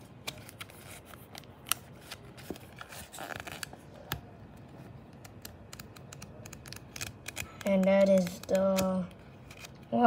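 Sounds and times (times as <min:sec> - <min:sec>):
flipbook pages riffling: 0:00.0 - 0:09.9
sharp paper snaps: 0:05.2 - 0:09.8.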